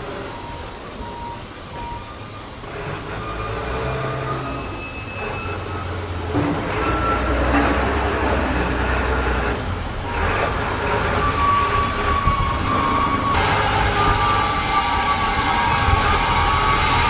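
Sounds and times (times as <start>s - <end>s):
steam locomotive hissing: 0.0s - 17.0s.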